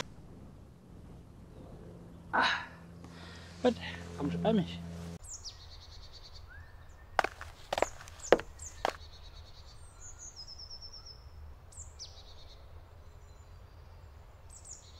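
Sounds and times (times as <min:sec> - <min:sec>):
steady low rumble: 0:00.0 - 0:05.3
woodland birds singing: 0:05.2 - 0:14.9.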